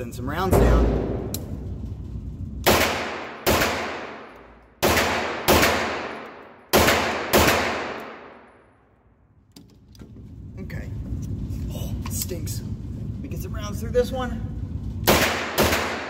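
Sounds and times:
gunshots echoing indoors: 0.4s - 9.4s, 14.6s - 16.0s.

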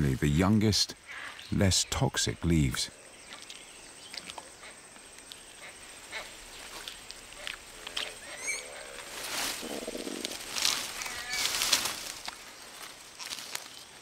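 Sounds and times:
leaves and twigs rustling: 2.6s - 14.0s
bird wavering call: 7.4s - 10.3s.

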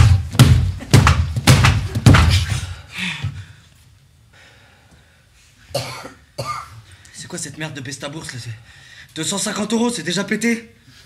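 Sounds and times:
heavy thuds and knocks: 0.0s - 3.4s.

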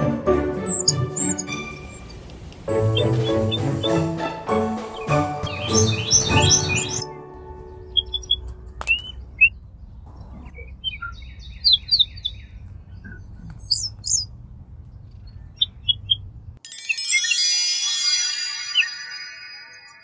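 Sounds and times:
music: 0.0s - 9.1s, 16.6s - 20.0s
small birds chirping: 0.5s - 17.4s.

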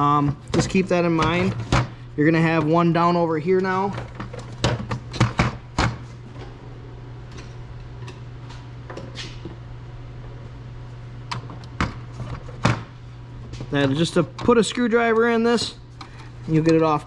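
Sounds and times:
steady low hum: 0.0s - 17.0s
tool drawer rattling: 0.2s - 6.0s.

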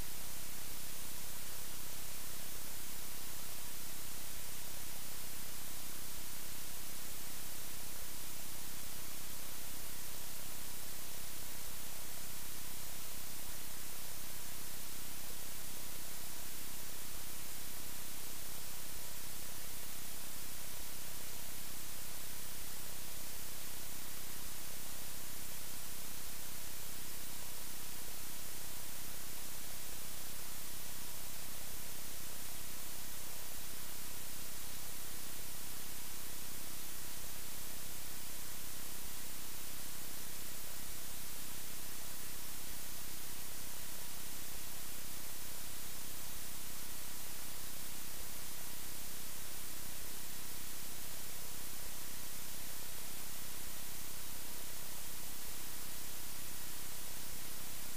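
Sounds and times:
recording static hiss: 0.0s - 57.9s.

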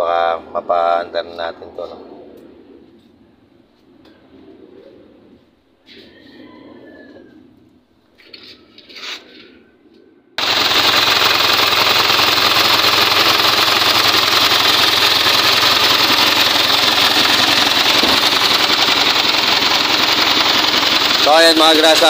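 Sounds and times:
diesel engine running: 10.4s - 22.0s.

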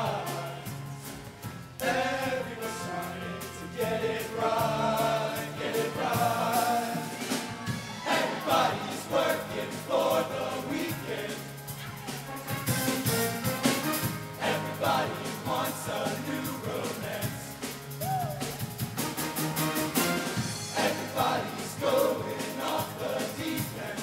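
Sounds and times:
male choir singing: 0.0s - 1.2s, 1.8s - 7.4s, 8.0s - 11.6s, 14.3s - 17.6s, 20.6s - 24.0s
instrumental accompaniment with beat: 0.0s - 24.0s.

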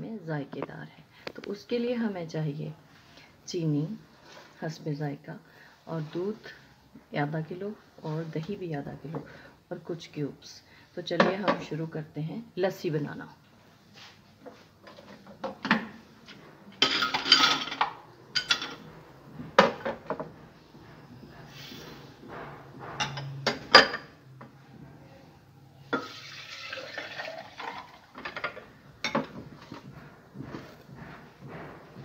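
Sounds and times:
glass dishes clinking: 16.8s - 18.9s, 23.0s - 24.1s
sugar pouring hiss: 26.0s - 28.0s
milk pouring: 26.0s - 28.2s.

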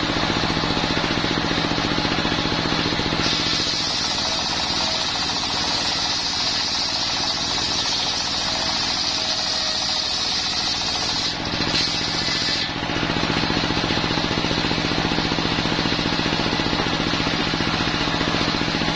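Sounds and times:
diesel engine chugging: 0.0s - 18.9s
circular saw ripping wood: 3.0s - 14.8s.

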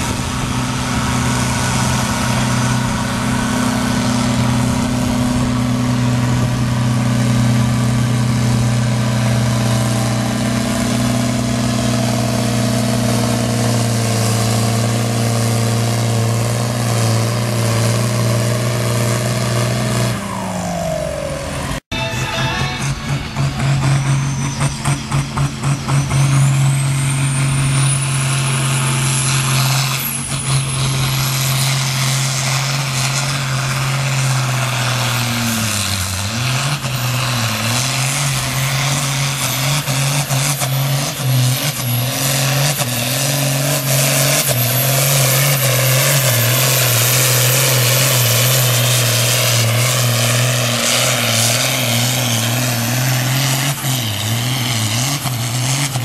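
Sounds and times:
diesel tractor engine full throttle: 0.0s - 56.0s
high whistle: 21.9s - 25.2s.

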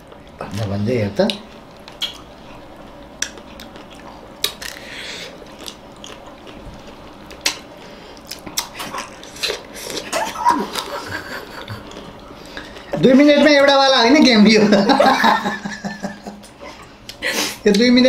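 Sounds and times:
people chewing ice cream: 1.3s - 13.0s.

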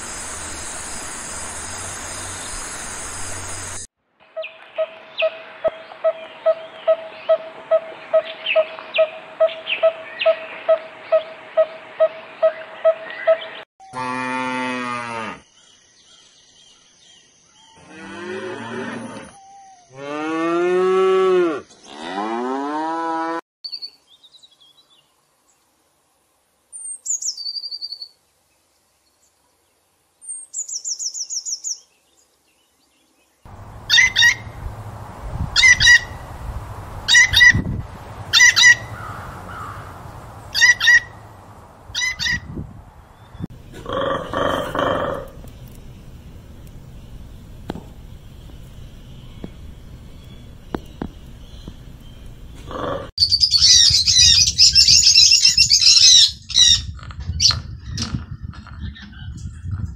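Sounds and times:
long drawn-out animal calls: 43.7s - 45.4s.

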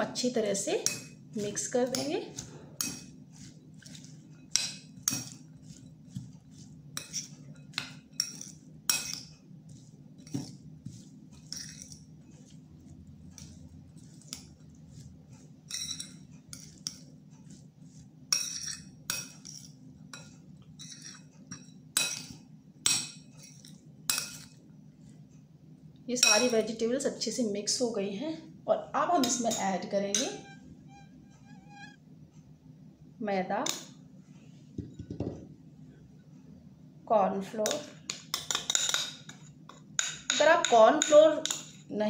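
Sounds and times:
faint steady hum: 0.0s - 42.0s
spoon clinking in glass bowl: 7.0s - 9.3s, 11.4s - 12.1s, 15.7s - 17.0s, 18.3s - 24.6s, 26.2s - 26.7s.

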